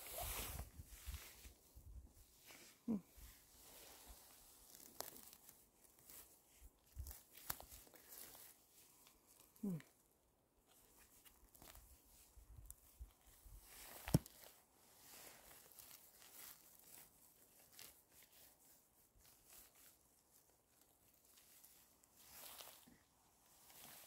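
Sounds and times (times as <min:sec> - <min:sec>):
rustling leaf litter: 0:03.6 - 0:09.8, 0:13.6 - 0:24.0.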